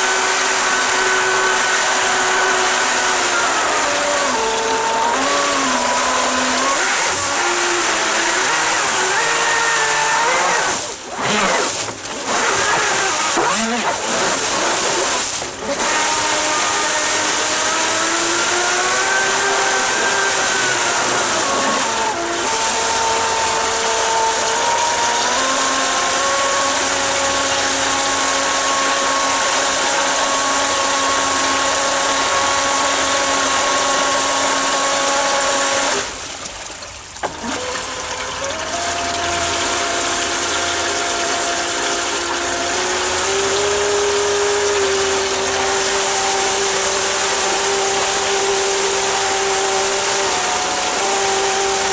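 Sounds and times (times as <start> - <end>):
electric motor whine: 0.0 - 36.5, 37.2 - 51.9
rushing water jet: 0.0 - 51.9.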